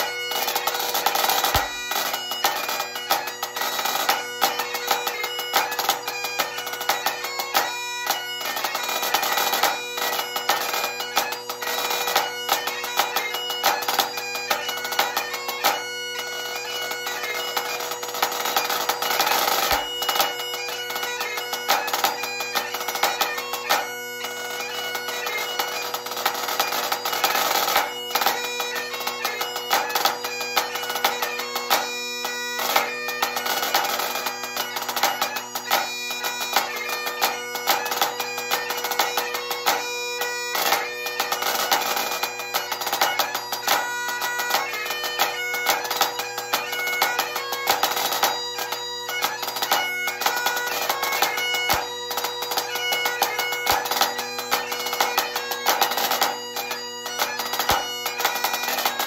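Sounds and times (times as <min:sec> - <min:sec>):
bagpipe playing a tune: 0:00.0 - 0:59.0
snare drum played with sticks: 0:01.1 - 0:02.6.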